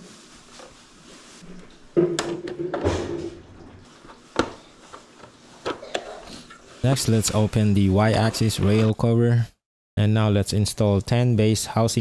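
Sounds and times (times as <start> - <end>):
plastic scraping and rubbing: 6.8 - 9.1.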